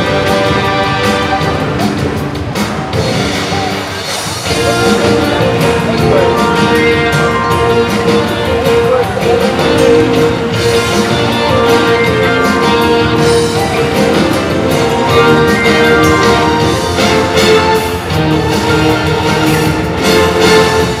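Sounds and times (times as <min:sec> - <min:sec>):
loud circus music: 0:00.0 - 0:21.0.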